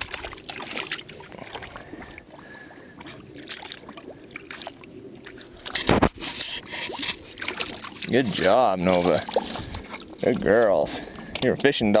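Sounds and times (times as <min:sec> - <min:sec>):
dog splashing in shallow water: 0:00.0 - 0:02.2, 0:06.9 - 0:11.4.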